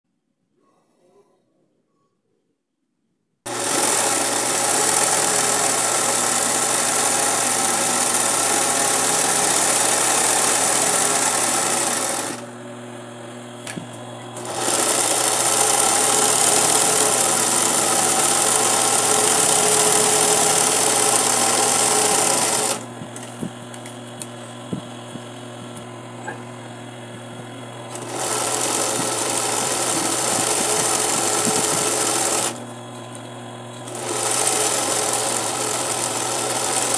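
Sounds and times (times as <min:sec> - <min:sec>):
sewing machine running: 0:03.5 - 0:36.9
low machine hum: 0:12.3 - 0:15.8, 0:22.2 - 0:34.1.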